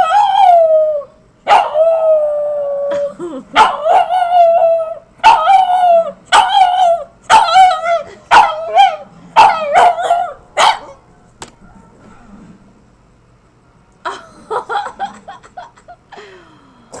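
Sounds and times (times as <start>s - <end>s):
small dog howl-barking: 0.0s - 11.0s.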